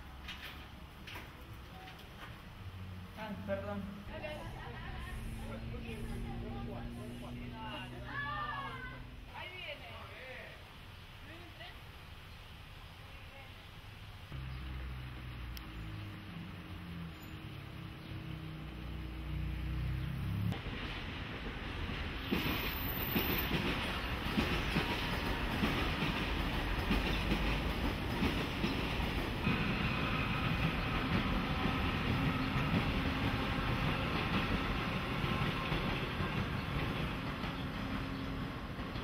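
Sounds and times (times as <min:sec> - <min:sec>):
train wheels clattering over rails: 0:20.6 - 0:39.0.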